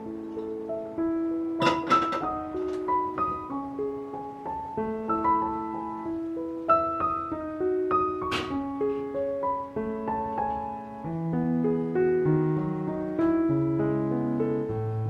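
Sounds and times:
soft piano music: 0:00.0 - 0:15.0.

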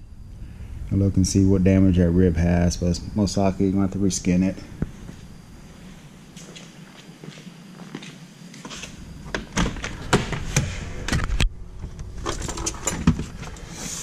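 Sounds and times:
footsteps on concrete floor: 0:04.9 - 0:08.9.

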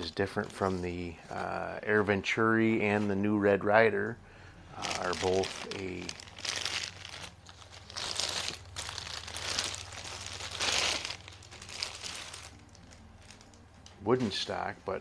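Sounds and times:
plastic bag crinkling: 0:04.8 - 0:14.5.

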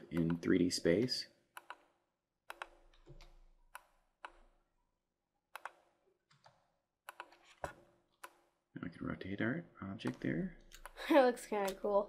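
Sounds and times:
mouse and keyboard clicks: 0:01.6 - 0:01.9, 0:02.5 - 0:04.4, 0:05.6 - 0:08.4.

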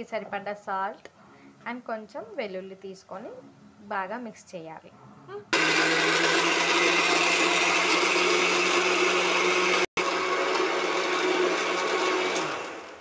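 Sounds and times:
mixer grinder whirring: 0:05.5 - 0:13.0.

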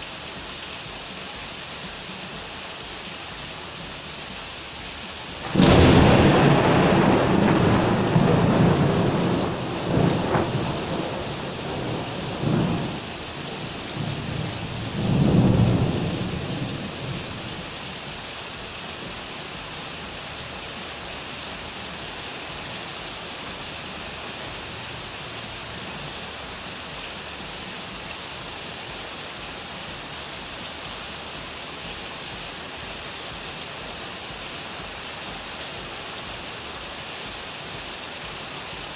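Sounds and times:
steady rain: 0:00.0 - 0:38.9
thunder rolling: 0:05.4 - 0:17.5.

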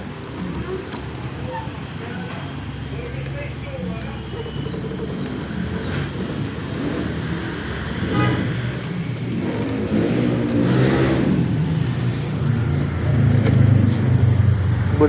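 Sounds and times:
vehicle engine humming: 0:00.0 - 0:15.0
vehicle passing: 0:04.7 - 0:15.0.

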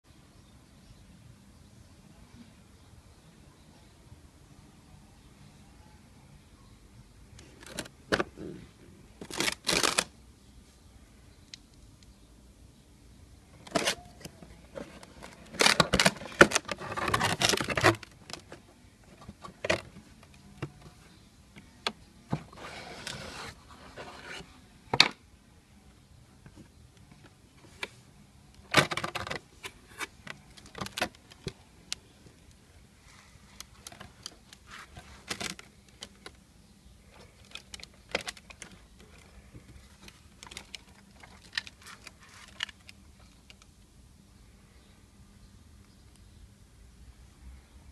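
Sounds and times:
rustling: 0:07.4 - 0:10.8, 0:13.5 - 0:21.3, 0:22.2 - 0:24.6, 0:26.5 - 0:36.4, 0:37.0 - 0:43.8
cardboard box and toy handling: 0:13.6 - 0:21.0, 0:22.3 - 0:24.5, 0:37.2 - 0:43.0.

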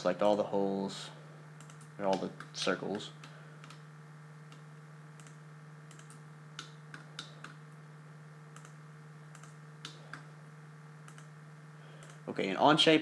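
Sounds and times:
steady low hum: 0:00.0 - 0:13.0
computer mouse clicking: 0:01.6 - 0:02.6, 0:03.2 - 0:03.8, 0:05.2 - 0:07.6, 0:08.5 - 0:10.3, 0:11.0 - 0:11.3, 0:12.0 - 0:12.2.

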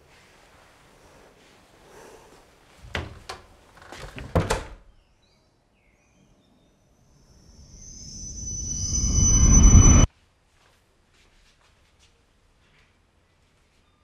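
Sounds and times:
door shutting thud: 0:02.8 - 0:04.8.

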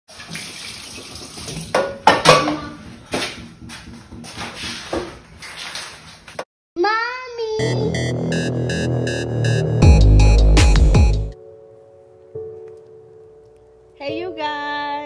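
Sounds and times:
pots and dishes clattering: 0:01.7 - 0:02.9.

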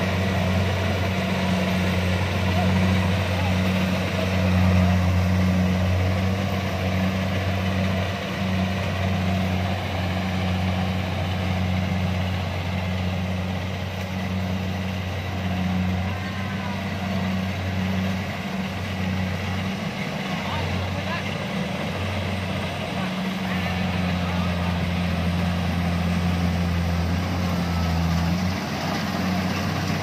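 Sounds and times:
diesel engine running under load: 0:00.0 - 0:30.0.

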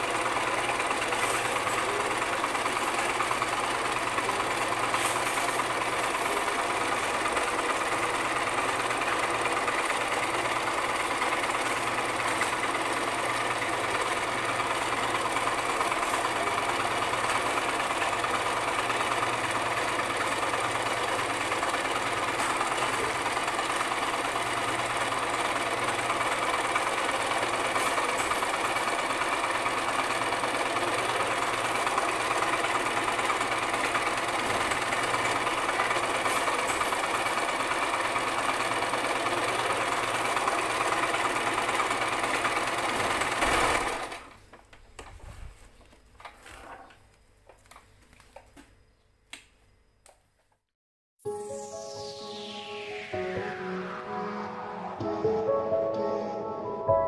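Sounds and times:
sewing machine running: 0:00.0 - 0:44.4.

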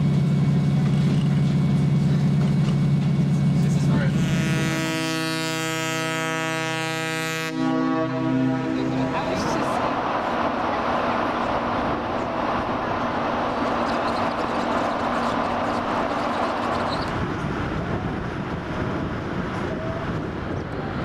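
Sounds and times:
ship rumble: 0:00.0 - 0:21.0
wind noise: 0:09.0 - 0:21.0.

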